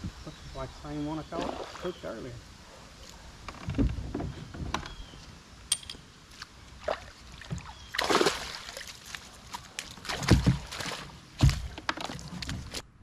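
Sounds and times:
water splashing: 1.2 - 2.2, 6.8 - 12.4.

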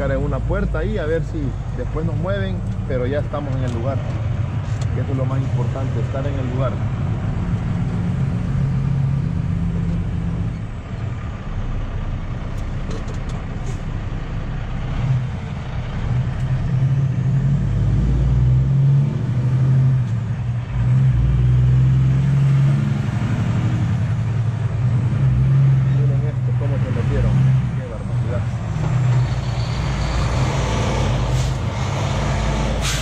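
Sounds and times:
diesel truck engine droning: 0.0 - 33.0.

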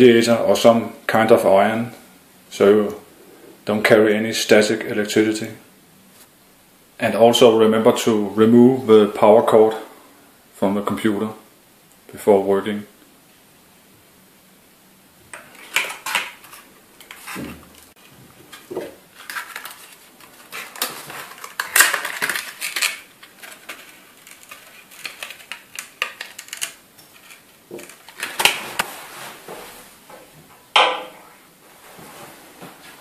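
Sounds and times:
plastic packaging crackling: 15.6 - 28.9.

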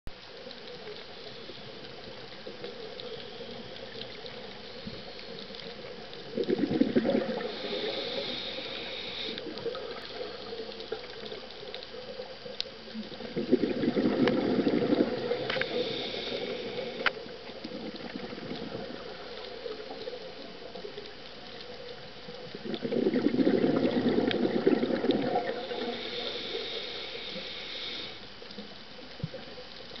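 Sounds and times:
underwater bubbles gurgling: 0.1 - 30.0
regulator hiss: 7.2 - 11.6, 14.9 - 17.6, 25.2 - 28.6.

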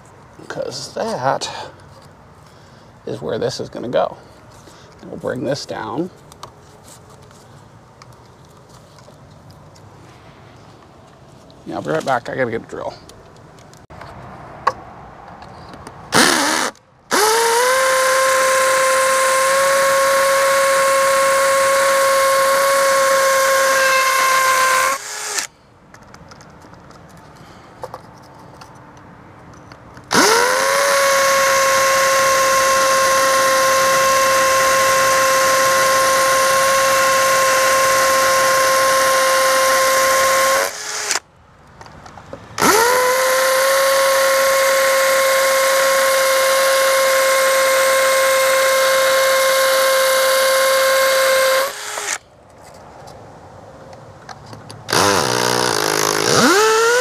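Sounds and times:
cordless drill drilling into brick: 16.2 - 25.5, 30.1 - 41.2, 42.6 - 52.2, 54.9 - 57.0.

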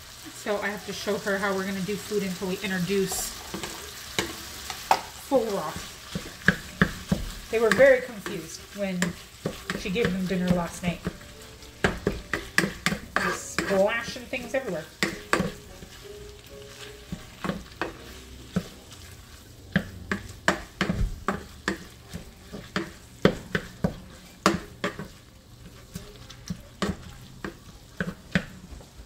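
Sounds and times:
frying sizzle: 0.0 - 29.0
spatula scraping a pan: 2.9 - 29.0.

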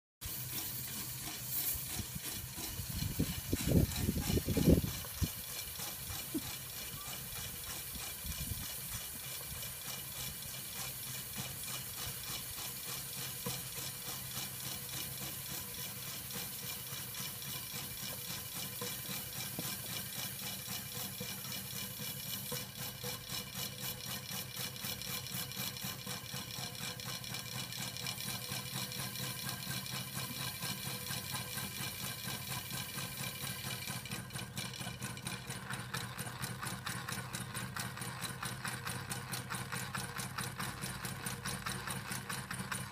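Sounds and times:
steam hissing: 0.2 - 34.2
steam engine rhythmic beat: 0.2 - 42.9.

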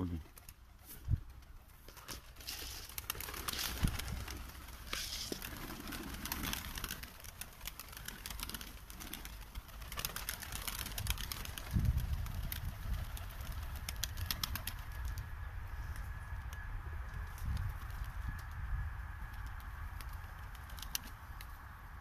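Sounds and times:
pigeons cooing: 0.0 - 11.6
pigeon wings flapping: 0.0 - 15.3, 15.9 - 21.8
small sharp ticks: 19.2 - 21.6.

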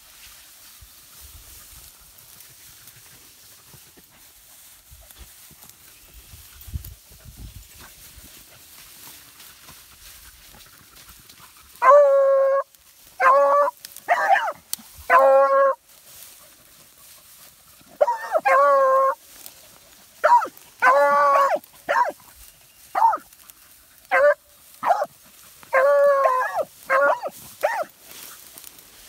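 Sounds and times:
hound baying: 11.8 - 15.8, 17.9 - 19.2, 20.2 - 22.2, 22.9 - 23.3, 24.0 - 27.9.

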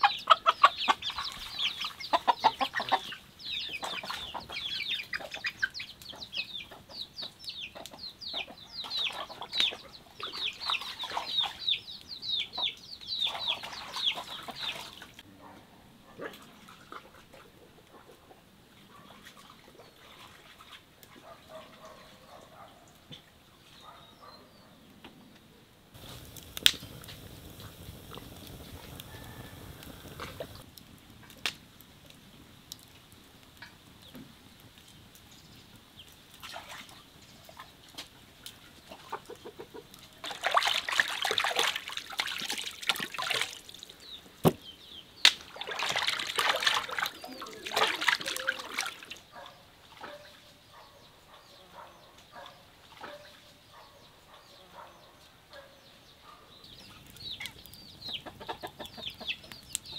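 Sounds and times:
water sloshing in metal bowl: 16.2 - 17.6, 18.9 - 22.4, 36.4 - 37.7, 40.2 - 43.9, 45.4 - 50.3
wood fire crackling: 25.9 - 50.7, 56.0 - 59.9.

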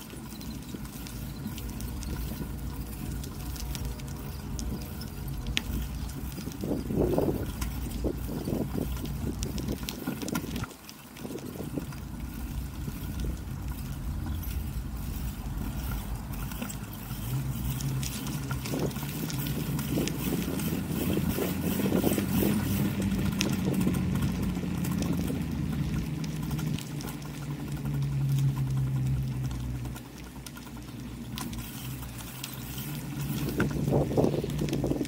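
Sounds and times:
wind rumble on microphone: 0.0 - 35.0.

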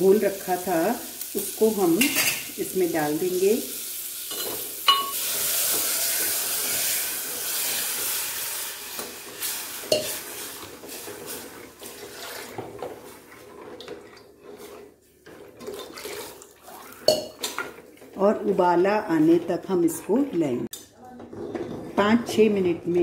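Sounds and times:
batter sizzling in hot pot: 0.0 - 20.3
steel spoon clinking pot: 4.3 - 5.2, 9.9 - 10.2, 17.0 - 17.7
liquid pouring: 15.5 - 17.7.

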